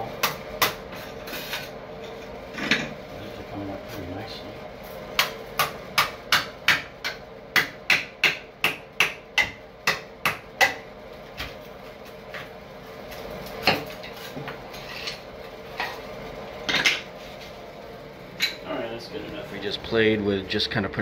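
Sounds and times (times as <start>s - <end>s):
hammer striking a chisel: 5.2s - 10.8s.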